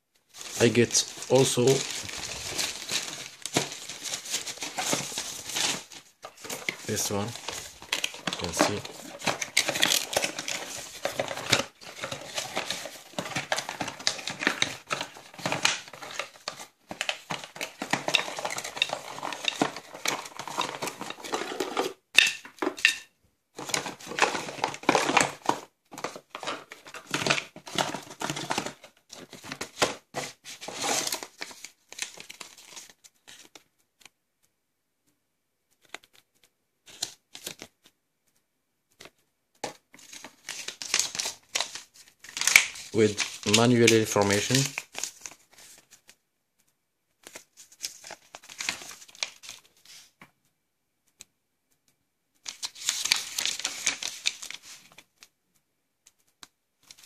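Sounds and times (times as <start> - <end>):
packaging rustling and crinkling: 0.3 - 23.0, 23.6 - 33.6, 39.6 - 46.2, 47.2 - 50.2, 52.4 - 55.3.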